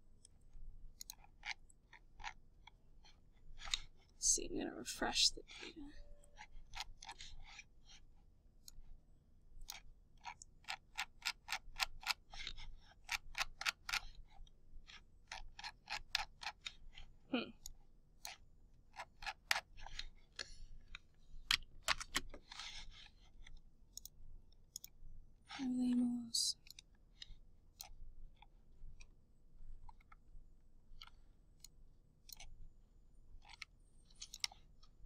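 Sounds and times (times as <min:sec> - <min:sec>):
computer keys clicking: 0:00.2 - 0:02.8, 0:09.6 - 0:16.8, 0:17.6 - 0:25.0, 0:25.8 - 0:29.2, 0:29.8 - 0:30.2, 0:30.9 - 0:32.6, 0:33.3 - 0:35.0
mouse buttons clicking: 0:01.0 - 0:02.4, 0:19.0 - 0:25.0, 0:31.0 - 0:32.6, 0:33.4 - 0:34.7.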